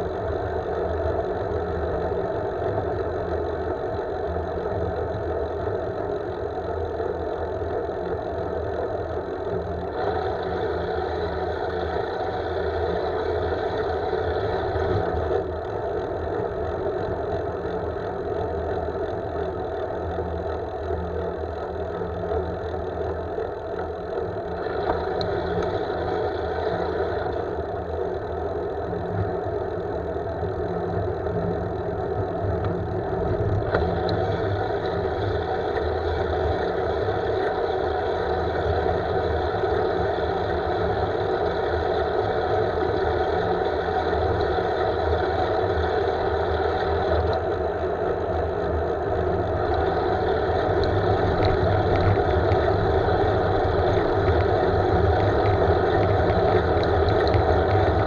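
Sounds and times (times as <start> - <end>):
road and wind rumble: 29.2 - 58.0.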